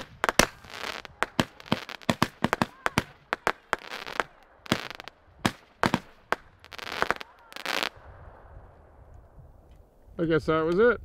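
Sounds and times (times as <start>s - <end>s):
firework bangs and bursts: 0.0s - 8.1s.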